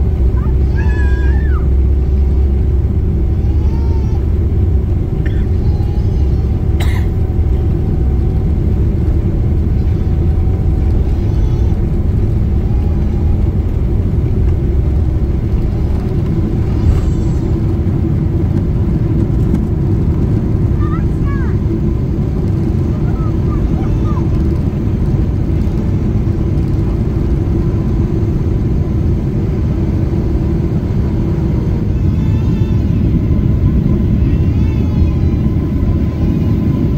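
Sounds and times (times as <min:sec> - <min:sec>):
jet engines rumbling in cabin: 0:00.0 - 0:36.9
faint cabin voices: 0:20.4 - 0:27.1, 0:31.6 - 0:36.9.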